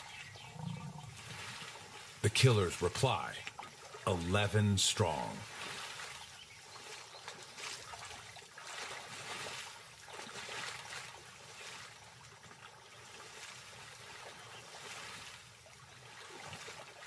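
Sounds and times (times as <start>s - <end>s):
water splashing and sloshing: 0.0s - 17.0s.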